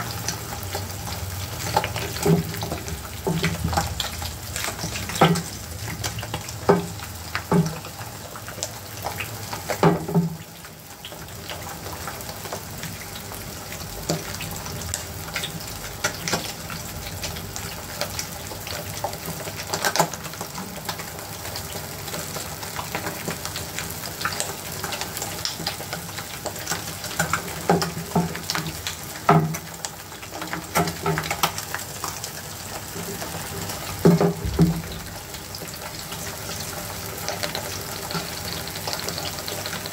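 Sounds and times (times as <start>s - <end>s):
eggs sizzling in oil: 0.0s - 39.9s
loud knocks or pops: 34.1s - 35.0s.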